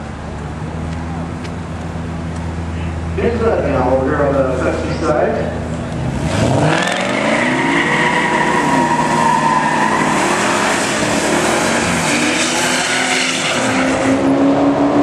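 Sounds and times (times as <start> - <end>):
engine revving: 6.0 - 15.0.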